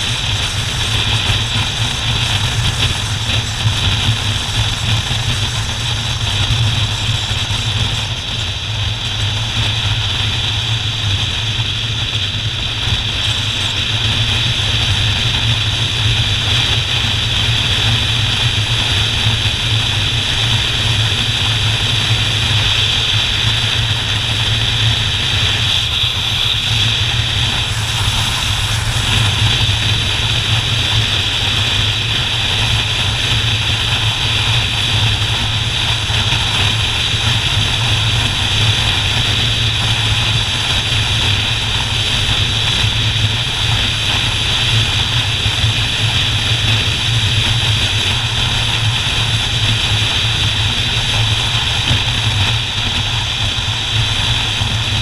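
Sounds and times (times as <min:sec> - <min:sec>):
motorcycle engine cruising: 0:00.0 - 0:55.0
wind and road noise: 0:00.0 - 0:55.0.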